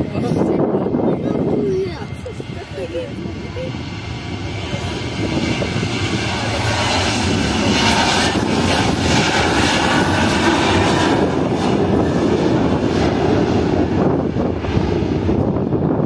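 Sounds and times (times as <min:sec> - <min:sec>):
jet engines roaring: 0:00.0 - 0:16.0.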